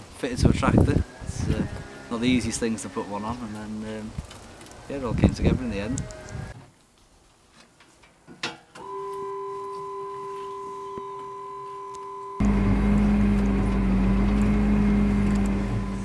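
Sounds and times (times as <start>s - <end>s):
hydraulic seat lift whine: 8.8s - 16.0s
tractor engine running: 12.4s - 16.0s.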